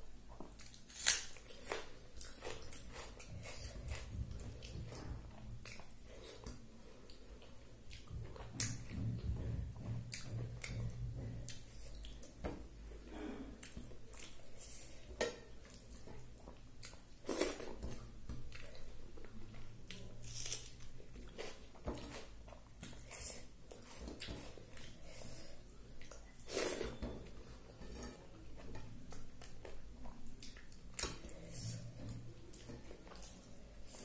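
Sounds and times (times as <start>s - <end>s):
person chewing food: 0.3s - 13.0s, 13.6s - 27.5s, 28.6s - 34.0s.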